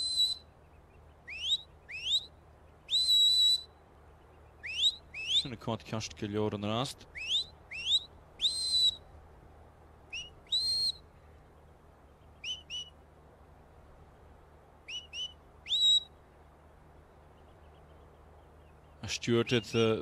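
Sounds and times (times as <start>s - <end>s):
whistle commands: 0.0s - 0.4s, 2.9s - 3.7s, 10.2s - 11.0s.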